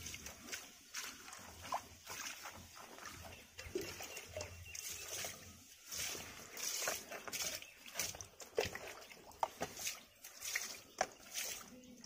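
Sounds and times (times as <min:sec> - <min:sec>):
water splashing on mesh and ground: 0:00.0 - 0:12.0.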